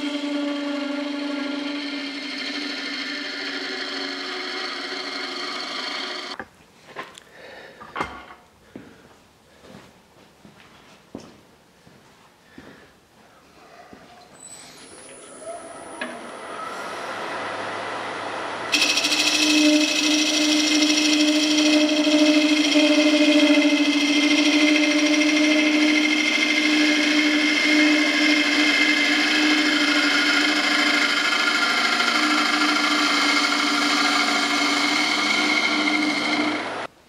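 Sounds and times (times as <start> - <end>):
turning tool cutting wood buzz: 0.0 - 6.4, 14.7 - 36.9
wood lathe spinning: 0.0 - 6.4, 14.4 - 36.9.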